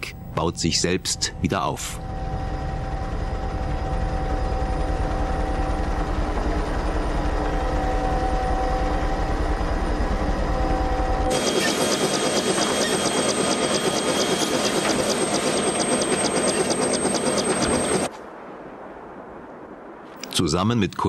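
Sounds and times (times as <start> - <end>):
helicopter engine whine: 0.0 - 18.1
helicopter rotor beat: 0.0 - 18.1
close helicopter clatter: 2.0 - 18.1.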